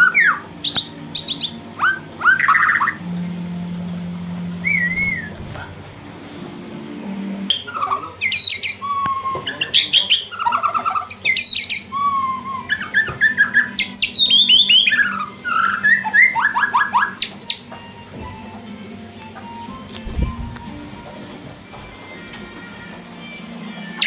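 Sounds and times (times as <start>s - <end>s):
songbird whistling and trilling: 0.0s - 3.0s, 4.6s - 5.5s, 7.5s - 18.5s.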